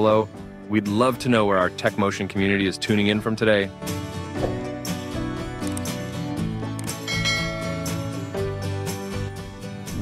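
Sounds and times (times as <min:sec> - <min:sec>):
instrumental music with steady beat: 0:03.7 - 0:10.0.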